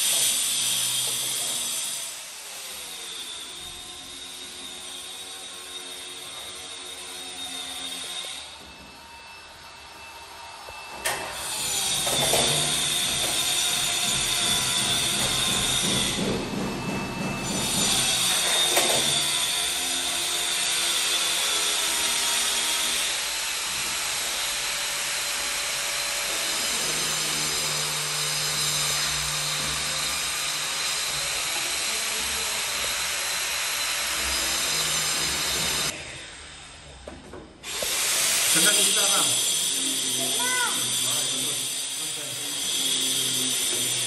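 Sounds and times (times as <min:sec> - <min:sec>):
electric power tool running: 0:37.6 - 0:44.0.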